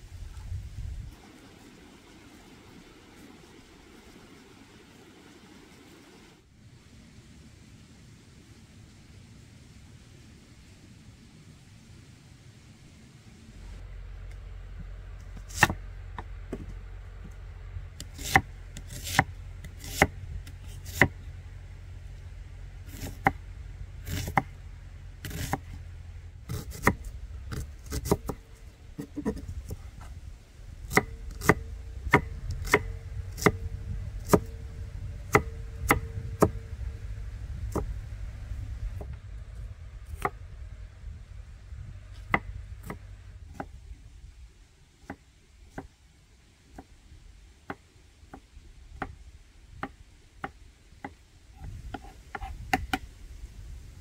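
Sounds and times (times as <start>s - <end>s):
steady low rumble: 0.0s - 45.7s, 46.4s - 54.0s
knife chopping on wooden board: 18.2s - 20.2s, 20.9s - 21.1s, 24.1s - 24.5s, 25.2s - 25.6s, 30.9s - 33.6s, 35.3s - 36.6s
knife scraping board: 22.9s - 23.3s, 24.0s - 24.5s, 25.2s - 25.6s.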